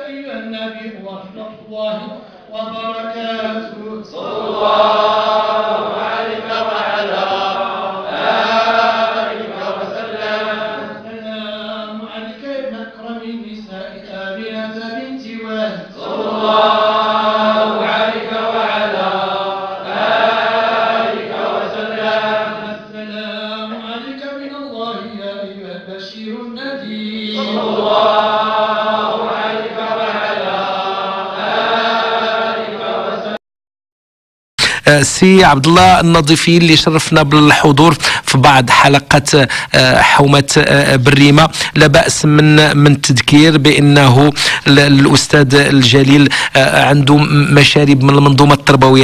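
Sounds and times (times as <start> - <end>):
men chanting in unison: 0.0 - 13.0, 15.7 - 24.2, 26.8 - 33.4.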